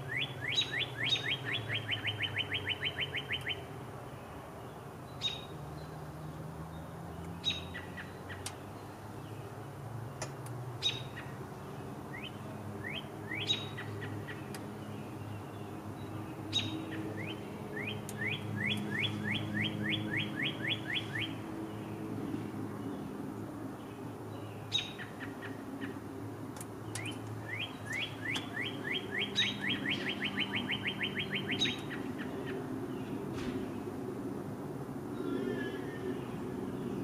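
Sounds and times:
songbirds whistling: 0.0s - 3.8s, 5.1s - 5.9s, 6.8s - 9.4s, 10.8s - 23.1s, 23.9s - 26.0s, 26.6s - 33.9s, 35.1s - 37.0s
sharp bird chips: 26.9s - 32.4s.

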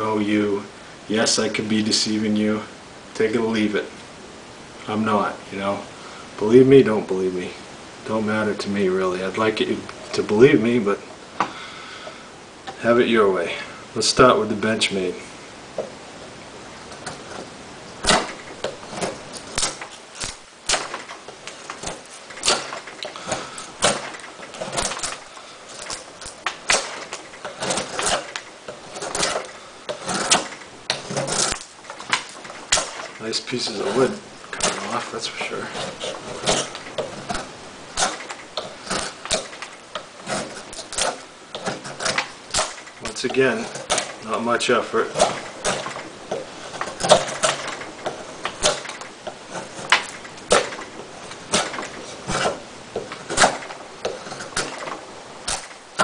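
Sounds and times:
knife whittling wood: 16.8s - 56.0s
wood curls snapping: 16.8s - 56.0s.

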